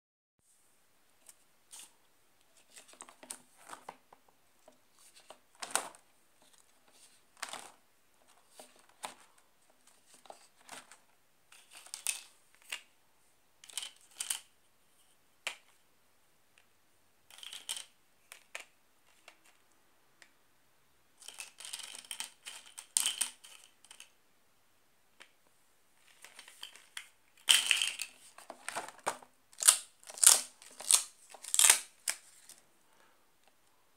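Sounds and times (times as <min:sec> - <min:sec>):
page turning rustle: 0:02.6 - 0:04.0
hands tapping and clicking plastic pieces: 0:02.6 - 0:12.9, 0:17.3 - 0:20.4, 0:21.2 - 0:24.2, 0:26.0 - 0:32.6.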